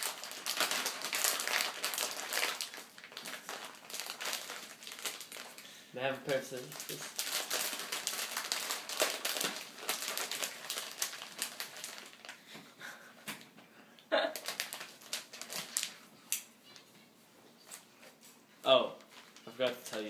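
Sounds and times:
plastic snack bag crinkling: 0:00.0 - 0:12.5, 0:14.3 - 0:16.5, 0:18.9 - 0:20.0.

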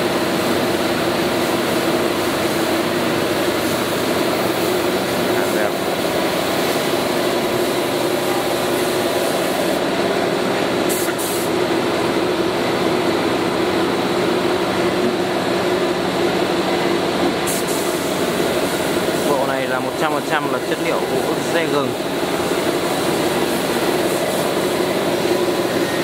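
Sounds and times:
spray gun hissing: 0:00.2 - 0:09.9, 0:10.8 - 0:11.6, 0:17.4 - 0:26.0.

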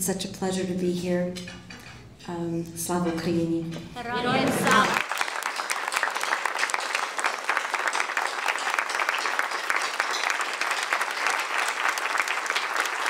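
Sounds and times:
audience applause: 0:04.1 - 0:13.0.

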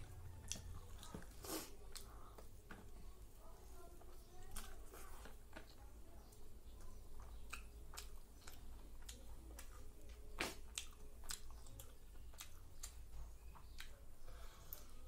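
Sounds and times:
close-up chewing with mouth clicks: 0:00.0 - 0:02.9, 0:04.0 - 0:15.0.

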